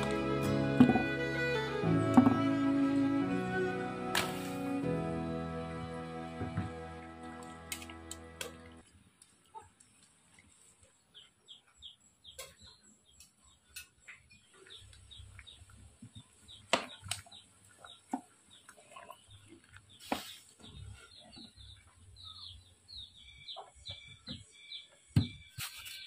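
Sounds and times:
small birds chirping: 0:09.5 - 0:26.0.

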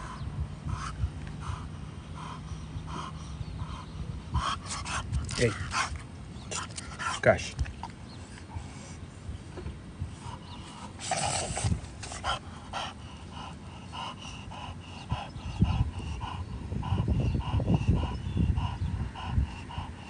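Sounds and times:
dog panting: 0:00.0 - 0:07.6, 0:10.1 - 0:20.0.

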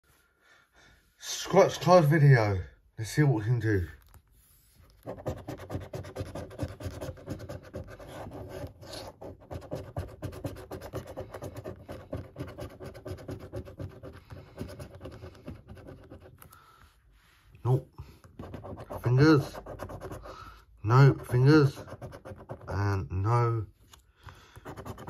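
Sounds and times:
coin scratching a scratchcard: 0:05.0 - 0:16.4, 0:18.3 - 0:20.3, 0:21.0 - 0:22.9, 0:24.6 - 0:25.0.

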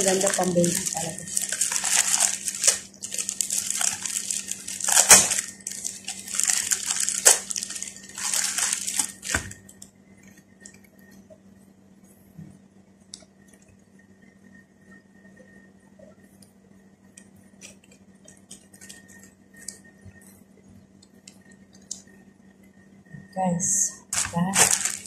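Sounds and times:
faint handling sounds: 0:00.0 - 0:09.7, 0:24.1 - 0:25.0
plastic packaging crinkling: 0:00.0 - 0:09.7, 0:17.6 - 0:19.2, 0:24.1 - 0:25.0.

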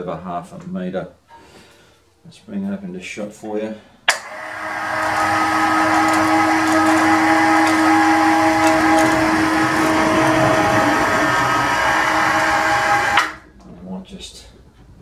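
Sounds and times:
electric hoist motor whining: 0:04.1 - 0:13.5.

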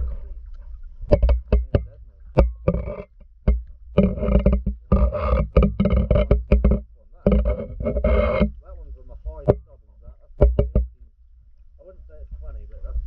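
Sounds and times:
deep rumble: 0:00.0 - 0:13.0
muffled underwater knocks: 0:01.0 - 0:08.6, 0:09.3 - 0:11.1.

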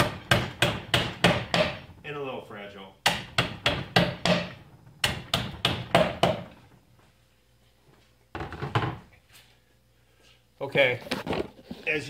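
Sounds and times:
hammer striking nails into wood: 0:00.0 - 0:01.9, 0:03.0 - 0:06.6
hammer knocking on table: 0:03.1 - 0:06.6.

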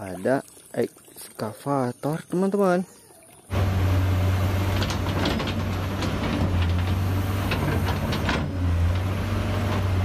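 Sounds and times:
excavator diesel engine drone: 0:03.5 - 0:10.0.

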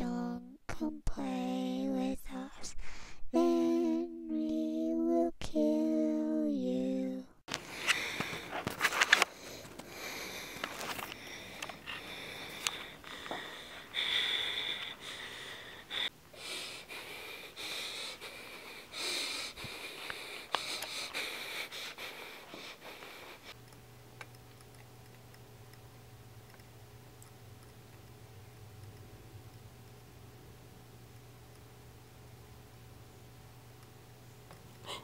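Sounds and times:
faint electrical hum: 0:00.0 - 0:35.0
person breathing hard wheezing: 0:07.6 - 0:23.6.

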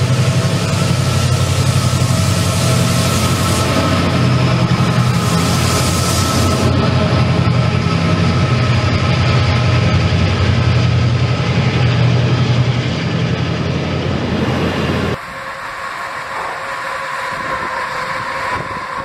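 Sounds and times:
locomotive drone: 0:00.0 - 0:19.0
train wheels rumbling: 0:00.0 - 0:19.0.

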